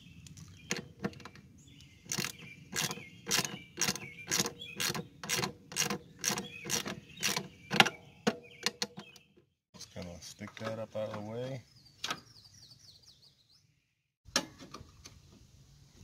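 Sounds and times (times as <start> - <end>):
birds chirping: 0.0 - 14.1.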